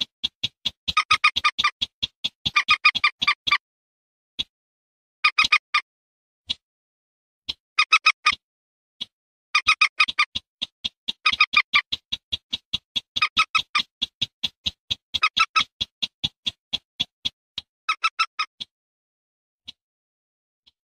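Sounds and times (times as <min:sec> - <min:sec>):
bird clicking calls: 0:00.0 - 0:03.6, 0:05.2 - 0:05.8, 0:07.5 - 0:08.4, 0:09.0 - 0:18.7.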